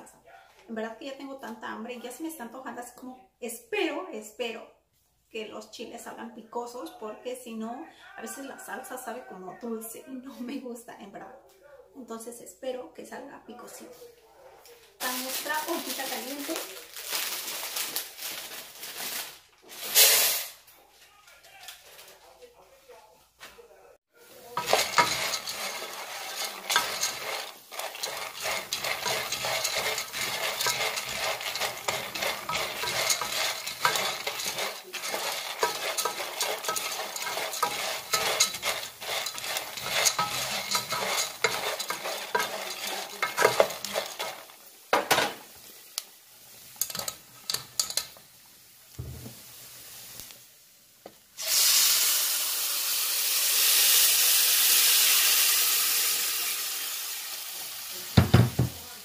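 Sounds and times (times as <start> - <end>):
light oil sizzle: 24.2 - 59.0
pasta rattling in a metal pot: 24.4 - 45.3, 46.7 - 48.2
loud sizzling hiss: 51.3 - 59.0.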